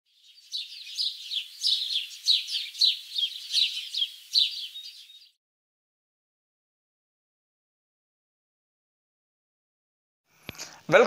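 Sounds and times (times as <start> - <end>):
birds chirping: 0.1 - 5.4.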